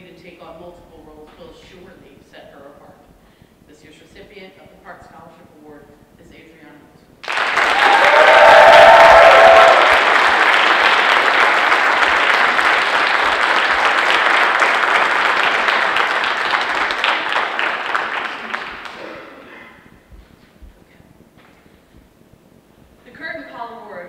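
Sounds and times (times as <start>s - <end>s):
audience applauding: 7.2s - 19.3s.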